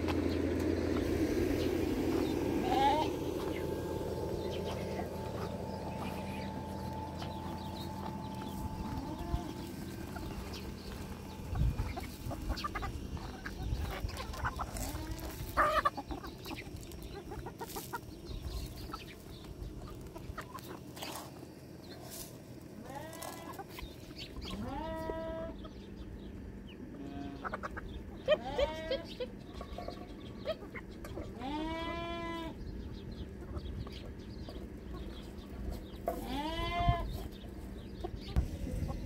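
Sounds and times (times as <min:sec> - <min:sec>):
chicken calls rising in pitch: 0:00.0 - 0:18.1
chickens clucking: 0:00.0 - 0:39.0.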